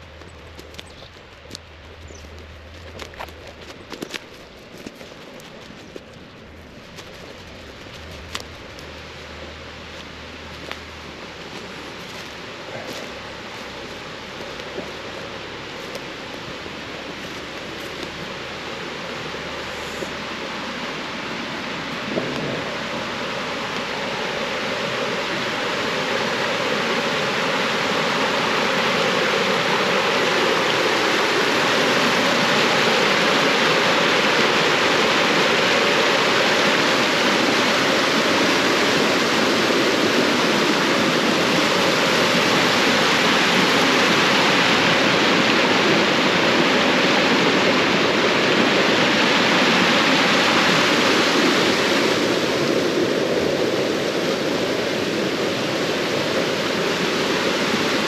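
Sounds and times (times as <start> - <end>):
stream of running water rushing: 0.0 - 58.0.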